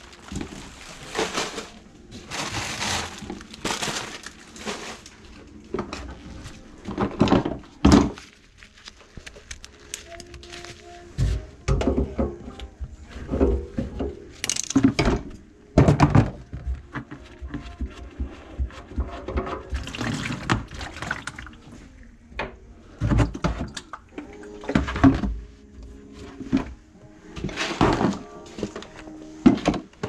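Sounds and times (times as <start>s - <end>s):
knocks and clatter under sink: 6.9s - 8.2s, 11.7s - 12.5s, 13.2s - 17.1s, 18.8s - 21.1s, 22.4s - 23.9s
water splashing into plastic bucket: 19.7s - 21.6s.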